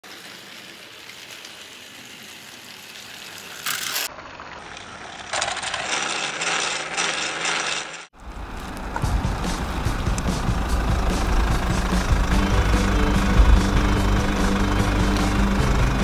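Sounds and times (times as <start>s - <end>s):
toy locomotive whirring and rattling: 3.4s - 8.1s.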